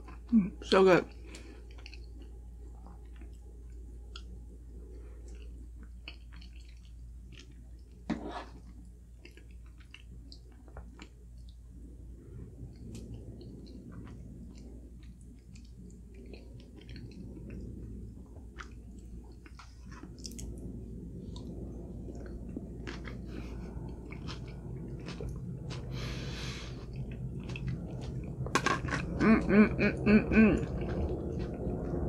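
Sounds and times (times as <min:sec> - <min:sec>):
person chewing food: 0:01.2 - 0:11.6, 0:12.6 - 0:32.0
person humming mm: 0:29.2 - 0:30.8.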